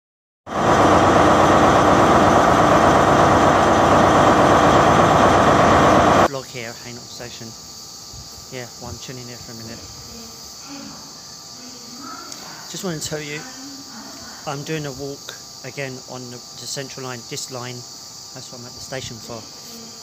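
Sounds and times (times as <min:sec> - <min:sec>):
loud steady rushing noise: 0:00.5 - 0:06.3
man speaking: 0:06.3 - 0:07.6, 0:08.5 - 0:09.9, 0:12.7 - 0:13.6, 0:14.4 - 0:19.6.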